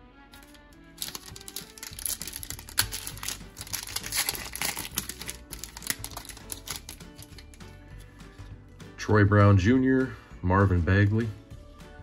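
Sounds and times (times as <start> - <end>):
soft background music: 0.0 - 12.0
foil pack crinkling: 0.4 - 7.6.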